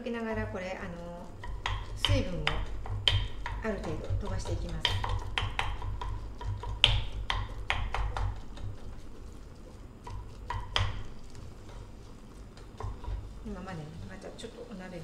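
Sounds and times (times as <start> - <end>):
low steady hum: 0.0 - 15.0
chopsticks knocking metal pot: 1.4 - 8.4.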